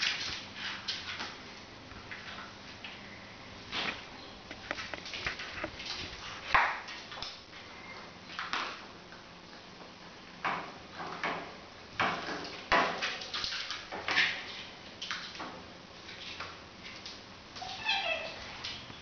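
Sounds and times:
paws and claws scrabbling on tiles: 3.6 - 7.4
small clicks and knocks: 3.8 - 5.8.

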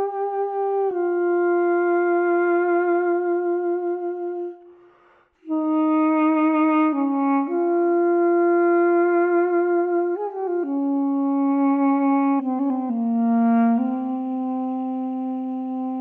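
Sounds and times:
slow solo wind instrument melody: 0.0 - 16.0.

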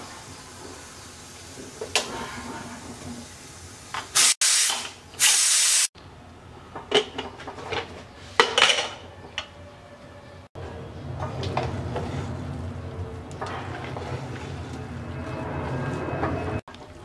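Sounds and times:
steam hissing from pressure cooker: 3.2 - 5.9.

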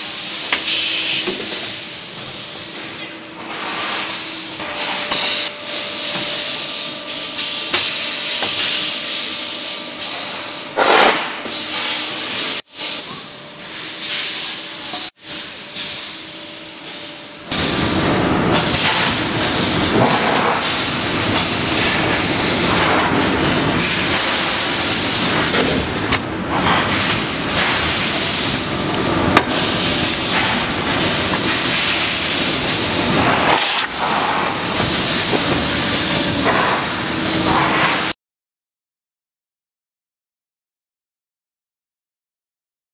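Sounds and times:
machine hum: 16.3 - 37.8.

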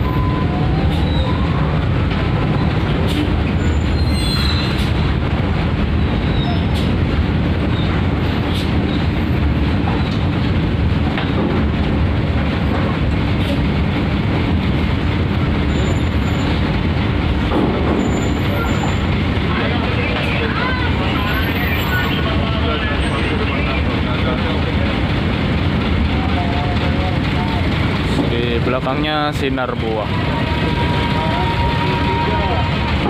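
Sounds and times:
brief high squeal: 0.0 - 1.6, 3.6 - 4.9
bus diesel rumble: 0.0 - 33.0.

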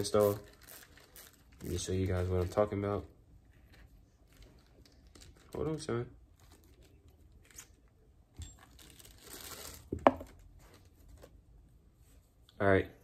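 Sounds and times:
packaging crinkling and rustling: 0.0 - 3.0, 3.6 - 7.8, 8.6 - 11.4.

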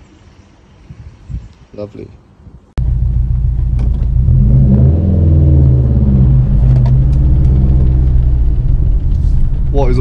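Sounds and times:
car engine from inside cabin: 2.8 - 10.0.

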